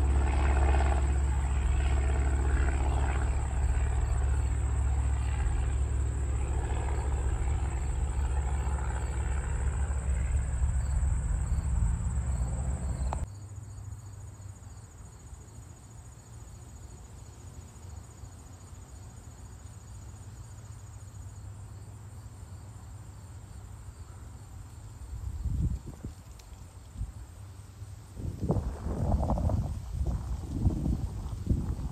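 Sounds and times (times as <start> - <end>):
propeller plane engine droning: 0.0 - 14.0, 24.2 - 31.9
insects buzzing and chirping: 0.0 - 31.9.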